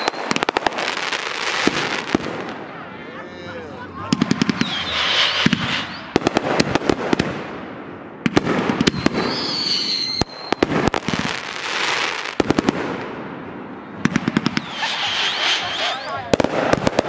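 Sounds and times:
high firework whistle: 0:00.0 - 0:02.2, 0:04.1 - 0:06.7, 0:08.8 - 0:12.2, 0:14.2 - 0:16.8
firework bangs and crackles: 0:00.0 - 0:17.0
firework hissing: 0:03.4 - 0:07.6, 0:08.8 - 0:12.4, 0:14.0 - 0:17.0.

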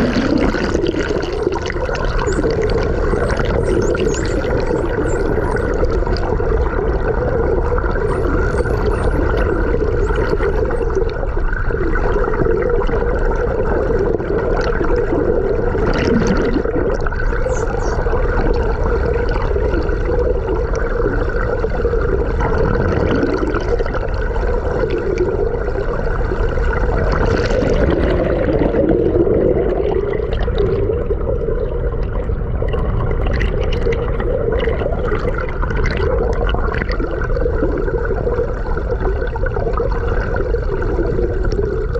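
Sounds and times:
underwater water rushing: 0:00.0 - 0:41.9
high dolphin whistles: 0:02.2 - 0:05.8, 0:08.0 - 0:10.9, 0:17.4 - 0:18.0.

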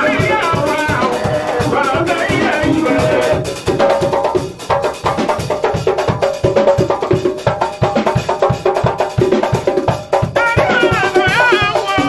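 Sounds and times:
sustained instrumental chords: 0:00.0 - 0:05.2
drum kit beat: 0:00.0 - 0:12.0.

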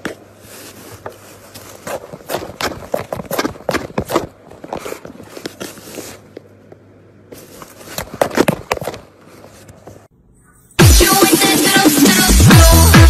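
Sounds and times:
cardboard box crackling: 0:00.0 - 0:06.4.

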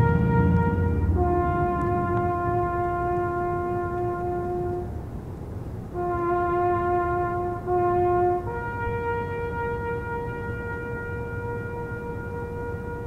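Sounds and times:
brass horn playing held notes: 0:00.0 - 0:05.1, 0:05.9 - 0:13.0.

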